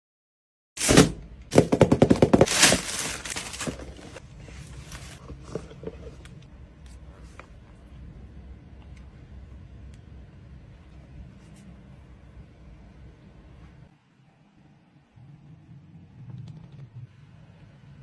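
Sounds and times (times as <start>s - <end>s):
cardboard box and wrapping crinkling: 0.8s - 4.2s.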